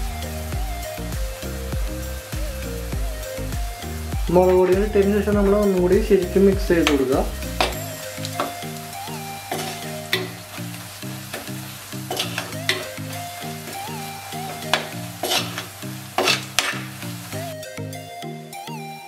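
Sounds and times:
onions sizzling in oil: 0.0 - 17.6
background music with a beat: 0.0 - 19.0
metal spatula scraping pot: 9.5 - 13.0, 14.5 - 17.3.

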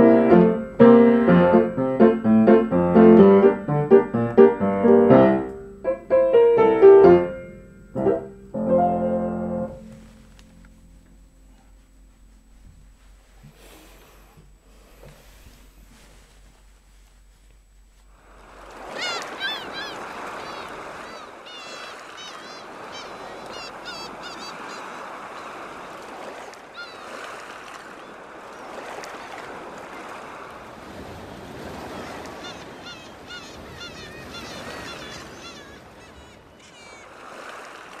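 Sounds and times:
ocean surf washing: 0.0 - 12.0, 18.1 - 38.0
short high bird calls: 18.8 - 25.6, 26.7 - 27.2, 31.8 - 37.2.

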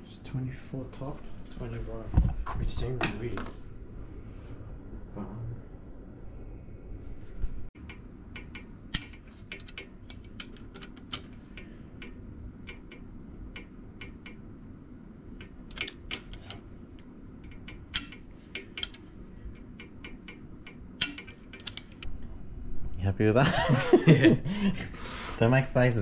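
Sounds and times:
ratchet wrench clicking: 17.4 - 19.0, 19.6 - 22.1.

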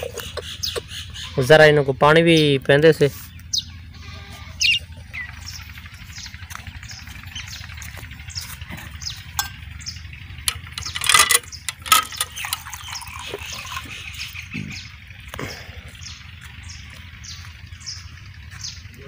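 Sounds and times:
small birds chirping: 0.0 - 19.0
water splashing into metal tumbler: 10.5 - 14.0.

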